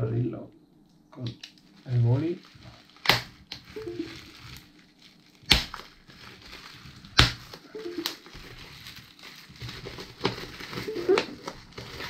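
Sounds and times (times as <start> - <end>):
plastic crinkling: 1.4 - 12.0
bubble wrap pops: 2.4 - 12.0
pen scraping plastic package: 5.4 - 12.0.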